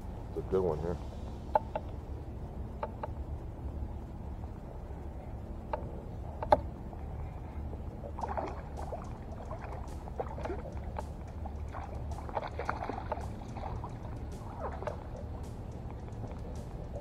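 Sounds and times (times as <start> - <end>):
low rumble: 0.0 - 17.0
water splashing: 8.0 - 17.0.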